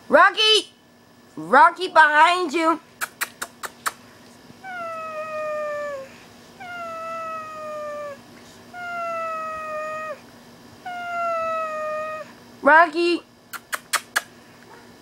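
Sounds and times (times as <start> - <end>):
dog whining: 4.6 - 12.4.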